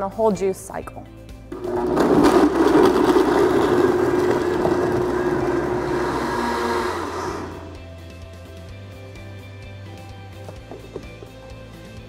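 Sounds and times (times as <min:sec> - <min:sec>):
contents churning in blender: 0:01.6 - 0:07.8
blender motor whine: 0:01.6 - 0:07.9.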